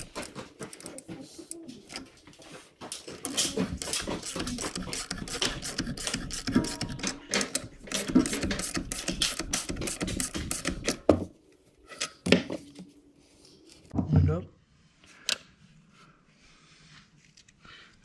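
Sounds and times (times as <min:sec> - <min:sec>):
ratchet wrench clicking: 0:03.3 - 0:11.0.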